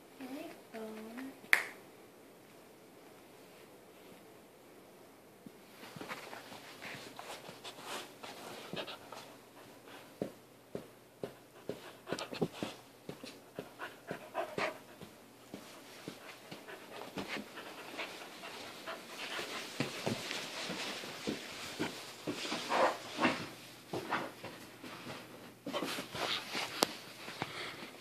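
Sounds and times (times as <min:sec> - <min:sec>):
puppy panting: 0:07.5 - 0:10.0, 0:11.4 - 0:21.0.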